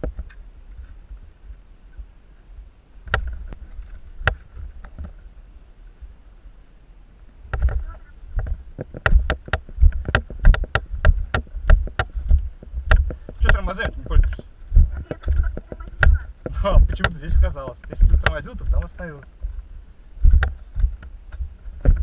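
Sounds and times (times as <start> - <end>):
rumble on camera microphone: 0.0 - 6.2, 7.3 - 22.0
heavy thumps: 7.5 - 22.0.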